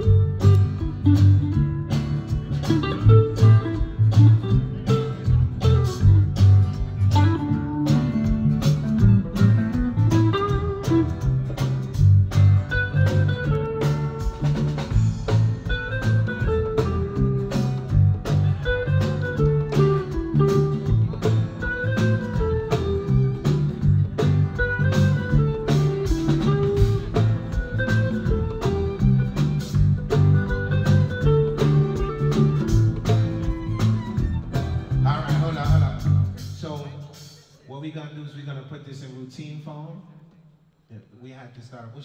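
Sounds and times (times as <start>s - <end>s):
electric bass line: 0.0s - 36.5s
electric guitar melody: 0.0s - 36.5s.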